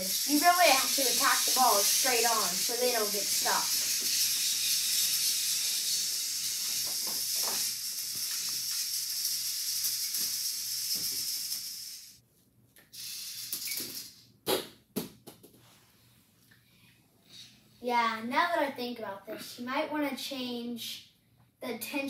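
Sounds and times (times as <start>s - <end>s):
steady high hiss: 0.0s - 12.2s.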